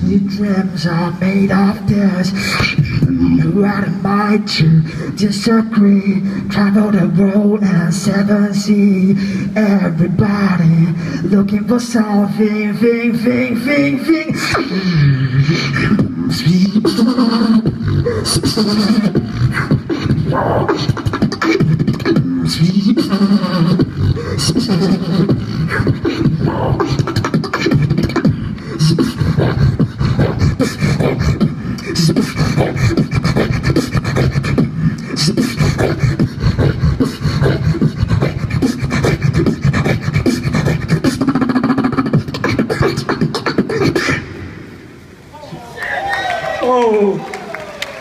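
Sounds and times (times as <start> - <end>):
beatboxing drum sounds: 2.2 - 5.3, 14.2 - 44.5
hummed bass line: 2.8 - 3.9.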